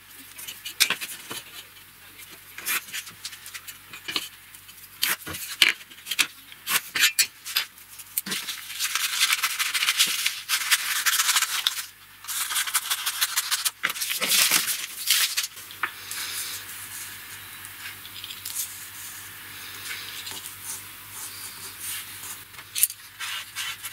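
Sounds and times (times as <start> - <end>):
scissors cutting paper: 8.2 - 15.6, 20.2 - 23.9.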